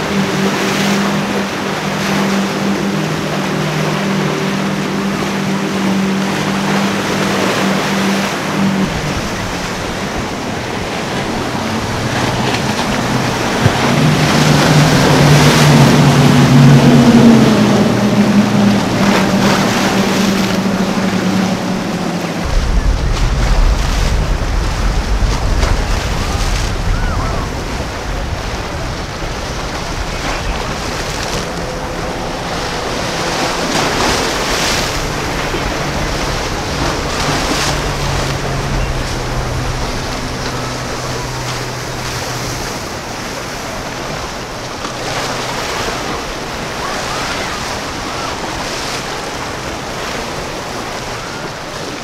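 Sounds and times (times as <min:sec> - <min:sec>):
choppy water: 0:00.0 - 0:52.0
low boat engine hum: 0:00.0 - 0:52.0
outboard boat engines at speed: 0:00.0 - 0:52.0
wind buffeting microphone: 0:00.0 - 0:52.0.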